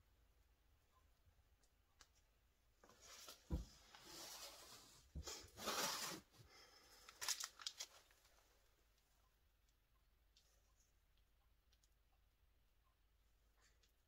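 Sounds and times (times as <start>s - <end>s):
plastic crinkling: 7.0s - 8.4s.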